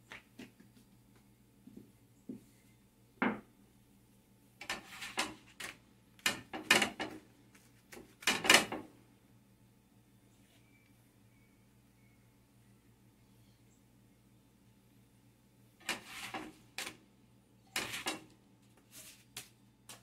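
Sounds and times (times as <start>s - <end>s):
rolling pin knocking on counter: 3.2s - 3.4s
spatula scraping a griddle: 4.6s - 5.7s, 15.8s - 16.6s, 17.7s - 18.3s.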